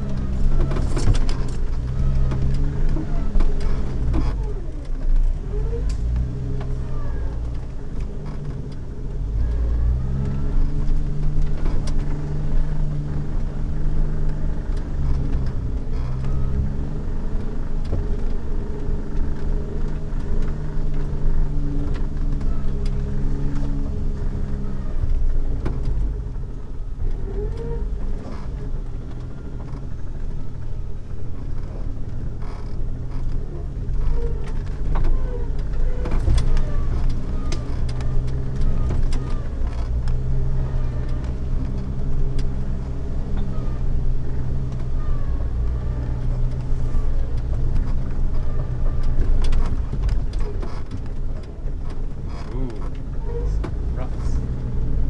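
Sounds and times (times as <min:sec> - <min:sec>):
car engine running at low speed: 0:00.0 - 0:55.0.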